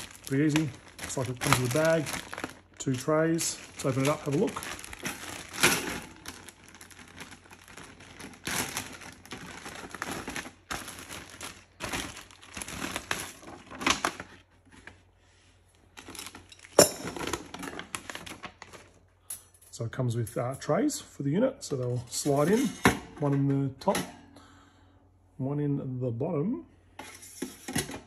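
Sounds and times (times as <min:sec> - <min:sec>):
plastic bag crinkling: 0:00.0 - 0:14.5, 0:15.9 - 0:19.0.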